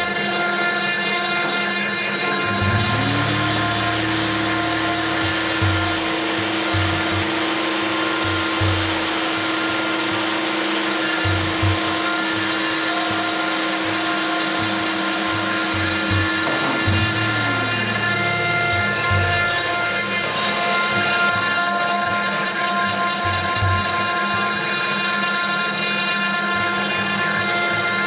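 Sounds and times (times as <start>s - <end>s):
router spindle whine: 0.0s - 28.0s
vacuum hose rushing: 2.2s - 24.6s
low rumbling: 2.5s - 10.0s, 16.1s - 21.6s.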